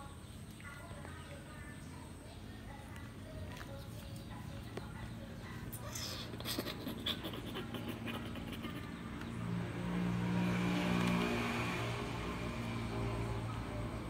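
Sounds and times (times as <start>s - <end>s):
vehicle engine passing by: 7.1s - 14.0s.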